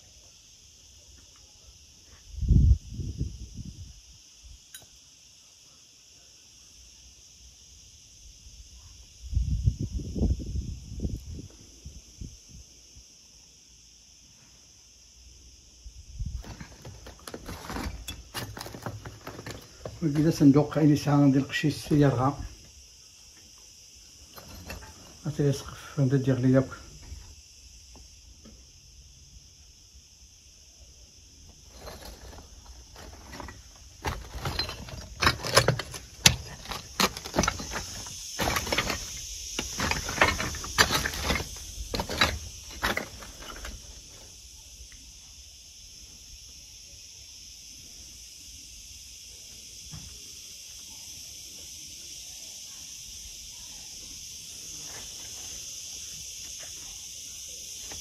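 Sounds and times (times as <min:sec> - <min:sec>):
insects chirring: 0:00.0 - 0:58.0
sharp clicks and knocks: 0:33.0 - 0:43.8.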